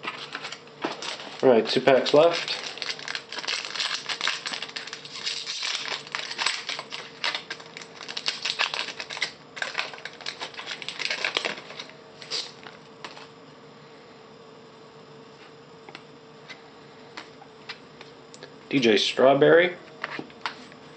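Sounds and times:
foil wrapper crinkling: 0.0s - 13.3s.

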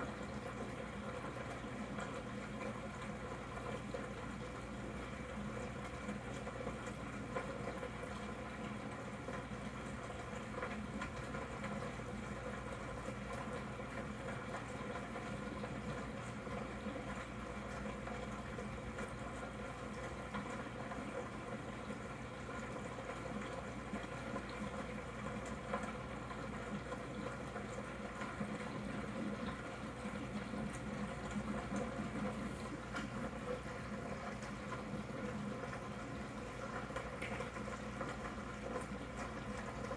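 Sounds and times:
air bubbles popping in water: 0.0s - 39.9s
faint steady hum: 0.0s - 39.9s.

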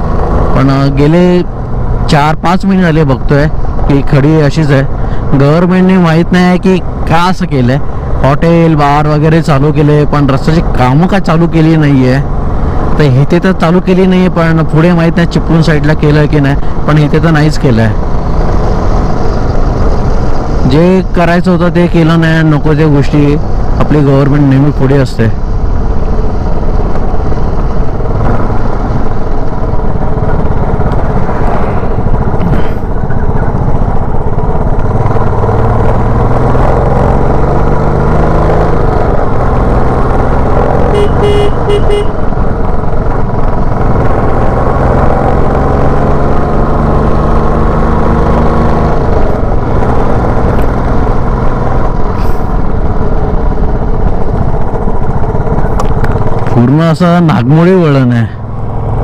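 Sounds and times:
motorcycle engine at speed: 0.0s - 59.0s
steady rushing noise: 0.0s - 59.0s
vehicle horn: 40.9s - 42.2s.

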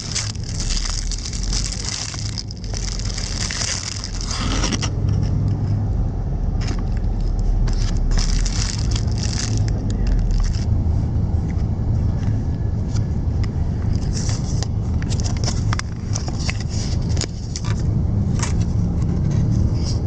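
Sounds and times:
plastic wrapping crinkling: 0.0s - 4.9s, 7.1s - 10.7s
moving bus rumble: 0.0s - 20.0s.

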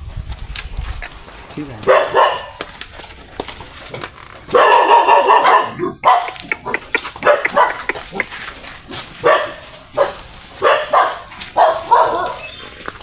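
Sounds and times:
dog barking: 1.8s - 2.6s, 4.5s - 8.3s, 9.2s - 12.5s
dog yipping: 1.9s - 2.6s, 4.5s - 8.3s, 9.2s - 12.6s.

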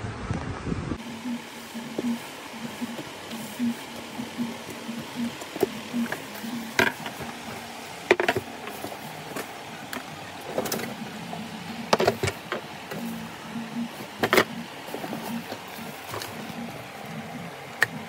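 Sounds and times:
plastic and metal parts knocking: 4.2s - 11.0s, 11.8s - 13.0s, 14.2s - 16.5s.

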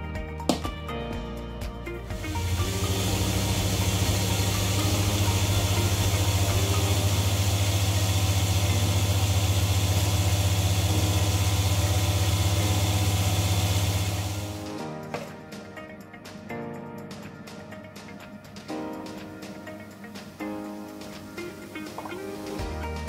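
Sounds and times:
blender motor running: 2.1s - 14.7s.

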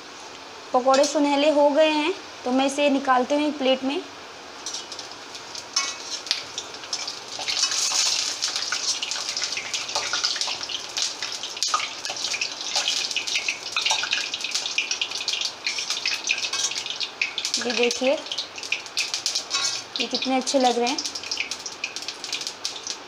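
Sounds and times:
hot oil sizzling and crackling: 0.0s - 23.0s
metal utensils clicking against pan: 4.6s - 5.2s, 5.8s - 10.6s, 11.6s - 21.5s.

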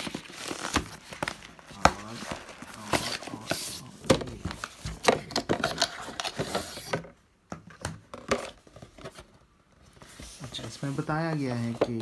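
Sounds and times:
cardboard box in wrapping handled: 0.0s - 6.9s.

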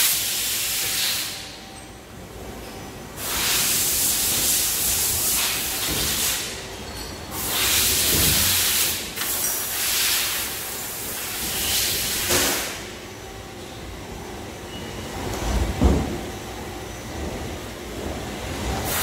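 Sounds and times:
compressed air hissing bursts: 0.0s - 1.6s, 3.2s - 6.6s, 7.3s - 12.9s.

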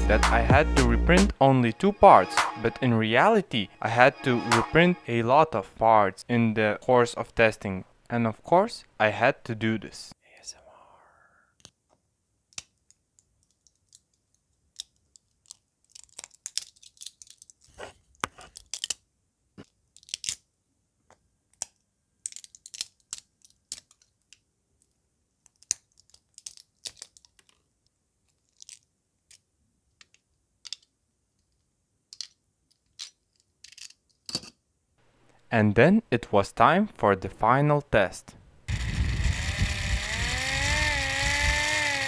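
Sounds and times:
plastic snapping and crunching: 13.6s - 19.0s, 19.6s - 20.4s, 21.5s - 24.4s, 25.4s - 27.6s.

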